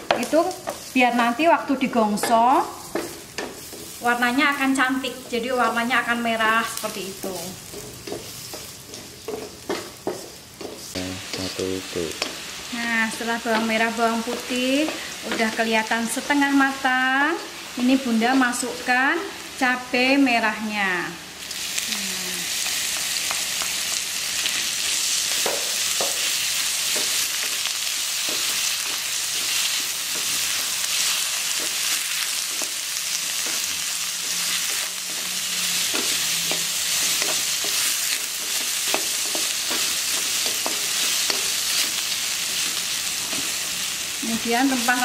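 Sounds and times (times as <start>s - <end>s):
food sizzling in hot oil: 0.0s - 45.0s
wooden spatula scraping a pan: 0.1s - 6.5s, 7.2s - 12.4s.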